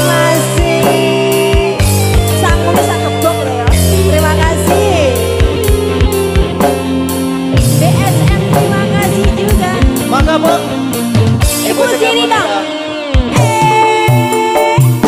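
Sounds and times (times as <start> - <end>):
woman singing into microphone: 0.0 - 5.3, 7.6 - 10.0, 13.3 - 15.0
bass: 0.0 - 15.0
keyboard: 0.0 - 15.0
hand drums: 2.1 - 12.0.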